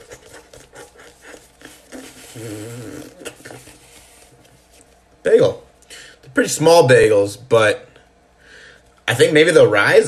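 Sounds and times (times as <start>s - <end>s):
man humming: 0.0s - 3.8s.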